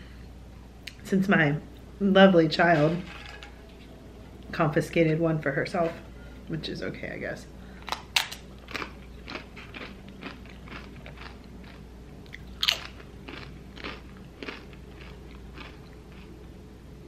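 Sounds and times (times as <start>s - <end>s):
tortilla chip crunching: 7.8s - 16.4s.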